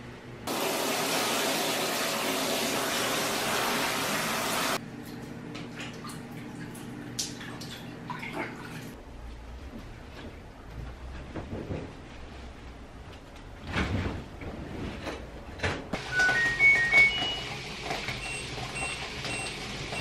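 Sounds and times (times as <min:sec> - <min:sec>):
water running hard: 0:00.5 - 0:04.8
water splashing in a basin: 0:05.7 - 0:09.0.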